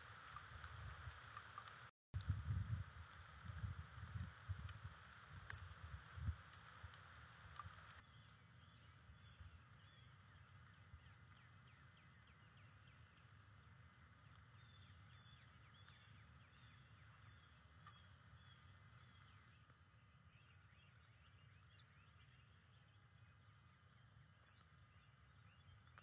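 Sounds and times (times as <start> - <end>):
steady low rumble: 2.2 - 17.7
songbird chirps: 7.0 - 26.0.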